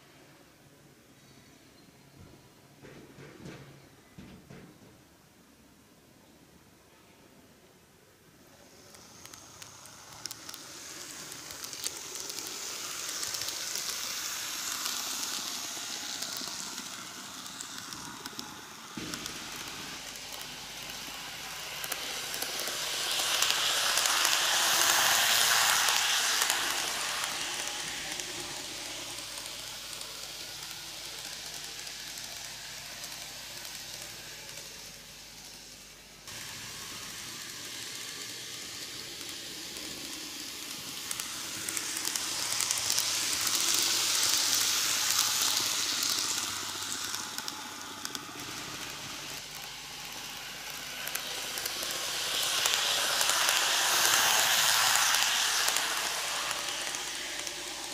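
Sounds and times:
model train motor whirring on rails: 8.3s - 57.9s.

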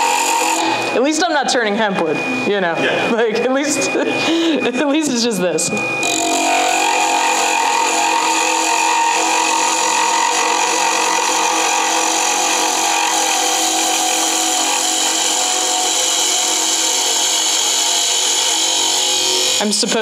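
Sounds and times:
lathe motor hum: 0.0s - 1.1s, 5.7s - 20.0s
turning tool cutting hiss: 6.0s - 19.7s.

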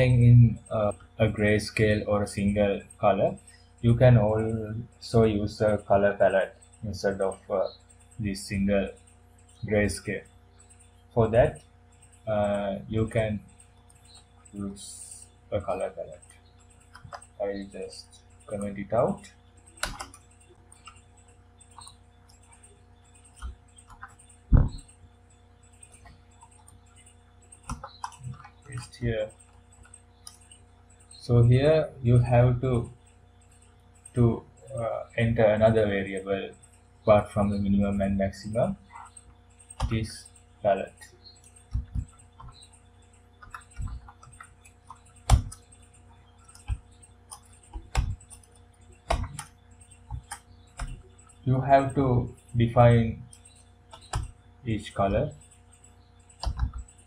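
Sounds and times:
keyboard keystrokes: 16.8s - 17.8s, 18.5s - 25.0s, 25.8s - 30.6s, 39.0s - 40.2s, 43.4s - 52.0s, 53.3s - 57.0s
mouse clicks: 19.8s - 25.0s.

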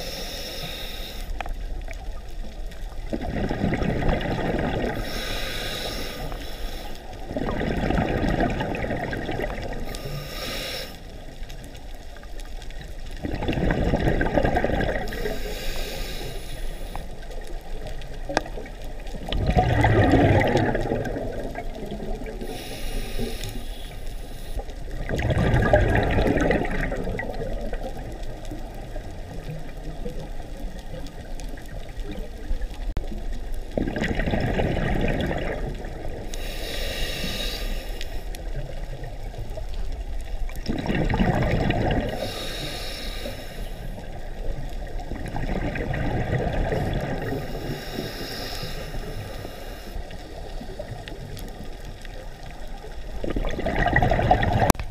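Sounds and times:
regulator breathing hiss: 0.0s - 1.5s, 4.9s - 7.2s, 9.8s - 11.2s, 15.0s - 17.2s, 22.4s - 24.8s, 36.3s - 38.7s, 42.1s - 44.3s, 47.2s - 51.0s
exhaled bubbles gurgling: 1.4s - 24.0s, 24.6s - 54.9s.

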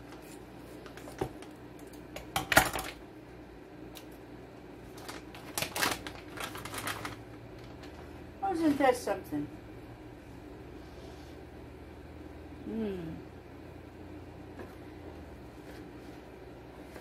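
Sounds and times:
plastic packet crinkling: 4.8s - 8.8s.

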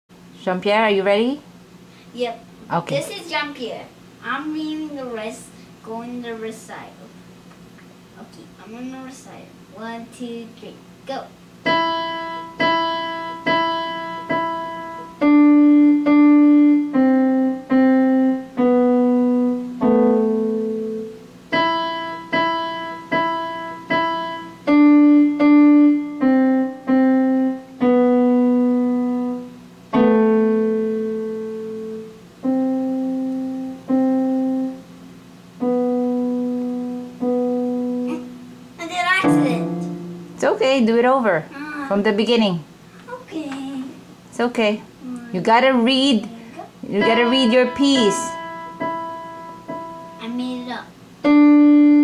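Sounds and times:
electronic keyboard piano melody: 11.7s - 34.8s, 35.6s - 38.5s, 39.2s - 40.4s, 47.0s - 50.3s.

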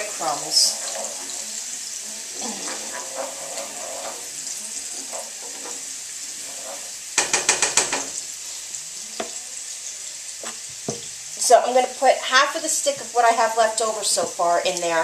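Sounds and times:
scallions sizzling in a pan: 0.0s - 15.0s
wooden spoon knocking a pan: 7.2s - 8.2s, 9.2s - 9.4s, 10.4s - 11.2s.

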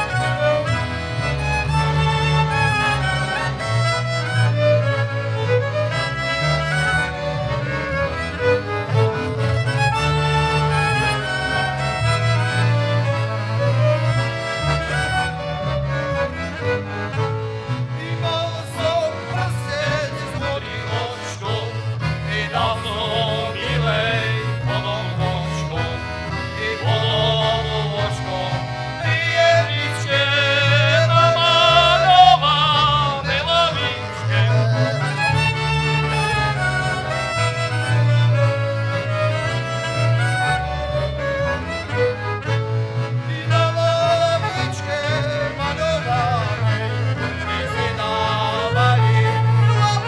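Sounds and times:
saxophone: 0.0s - 18.1s, 33.2s - 50.0s
accordion: 0.0s - 50.0s
double bass: 0.0s - 50.0s
fiddle: 0.0s - 50.0s.

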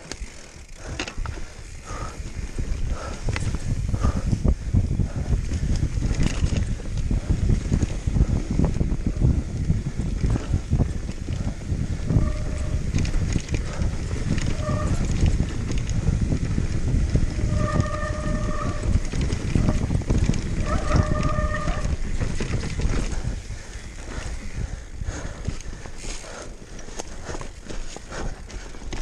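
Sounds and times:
mountain bike rattling and knocking: 0.0s - 29.0s
wind rushing over microphone: 0.0s - 29.0s.

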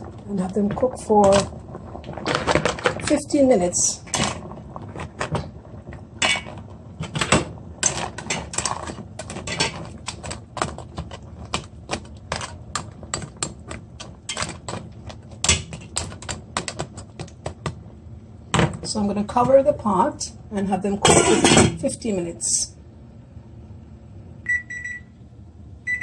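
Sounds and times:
crab legs clacking in metal pot: 4.0s - 17.8s.

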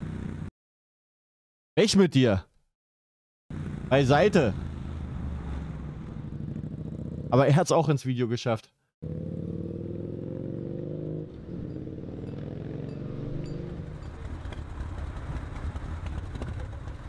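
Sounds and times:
motorcycle engine riding: 0.0s - 0.5s, 3.5s - 7.4s, 9.0s - 17.0s
motorcycle engine rumbling low: 5.7s - 7.3s, 11.2s - 17.0s.

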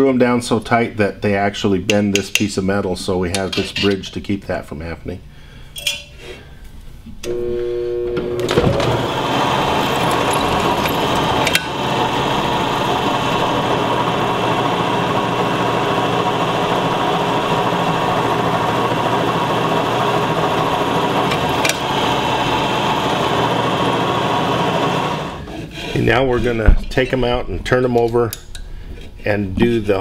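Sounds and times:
drill press cutting steel: 8.2s - 25.6s.

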